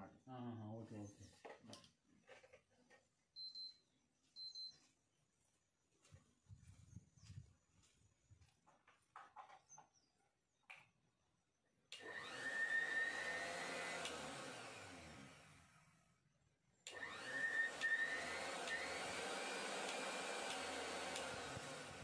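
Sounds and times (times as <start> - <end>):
mixer grinder motor whining: 11.9 - 16.1, 16.8 - 22.0
small clicks: 14.0 - 14.3, 16.8 - 17.1, 19.8 - 21.8.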